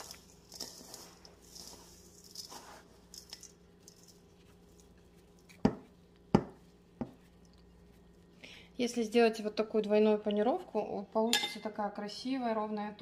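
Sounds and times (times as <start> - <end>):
breadcrumbs rustling: 0.0 - 8.4.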